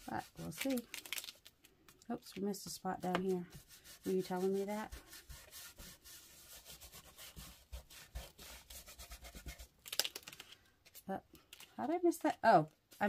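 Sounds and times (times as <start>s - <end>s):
sponge scrubbing on paper: 0.0s - 0.8s, 2.5s - 9.8s
stencil crackle: 0.0s - 1.5s.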